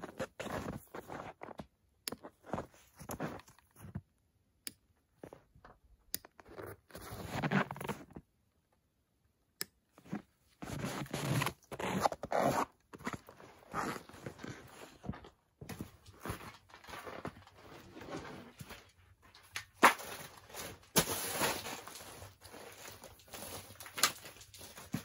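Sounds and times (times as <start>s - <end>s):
string lights rustling and scraping: 6.3s - 8.2s, 10.0s - 25.0s.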